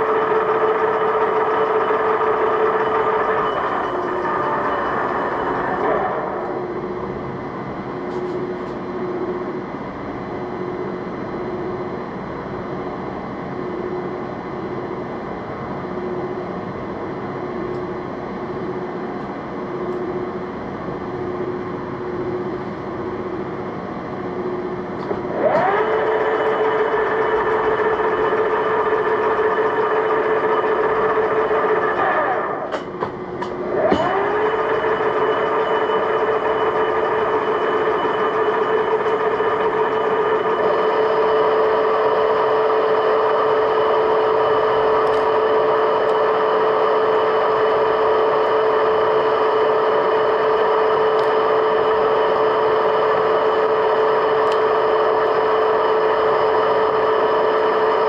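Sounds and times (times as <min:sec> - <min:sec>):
metalworking machine humming: 0:00.0 - 0:58.0.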